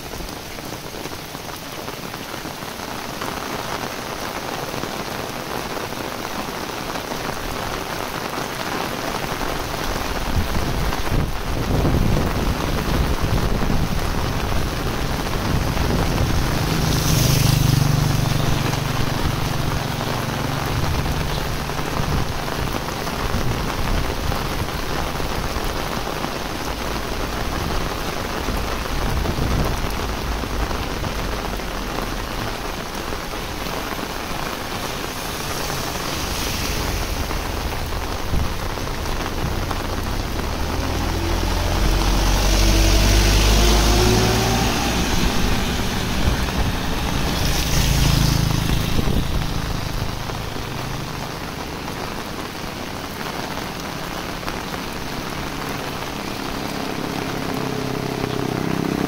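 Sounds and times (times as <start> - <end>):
heavy rain falling: 0.0 - 59.0
tyre hiss on wet road: 0.0 - 59.0
motorcycle passing: 13.8 - 23.1, 27.3 - 52.3, 54.4 - 59.0.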